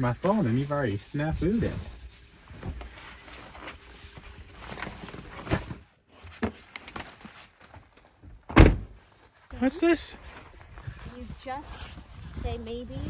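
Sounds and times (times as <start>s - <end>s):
footsteps outside: 6.5s - 13.0s.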